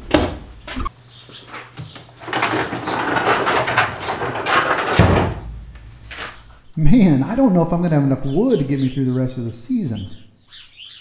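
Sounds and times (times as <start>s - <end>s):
footsteps: 5.6s - 6.6s.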